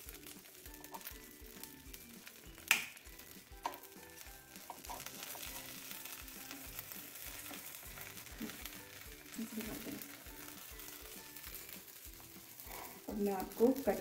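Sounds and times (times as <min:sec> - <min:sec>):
faint sizzling hiss: 0:00.0 - 0:14.0
quiet background music: 0:00.0 - 0:14.0
wooden spatula knocking on griller: 0:03.6 - 0:03.9, 0:04.5 - 0:05.5.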